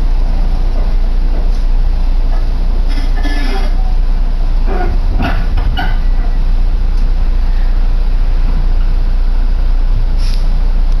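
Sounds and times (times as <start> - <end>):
train interior rumble: 0.0 - 11.0
short hiss: 10.1 - 10.6.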